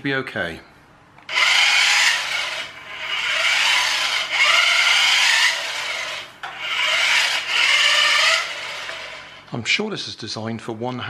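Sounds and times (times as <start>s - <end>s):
toy car motor whirring: 1.3s - 9.5s.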